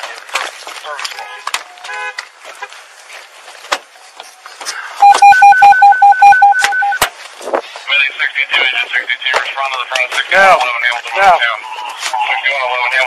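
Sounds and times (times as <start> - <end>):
rapid electronic beeping: 5.0 - 7.0.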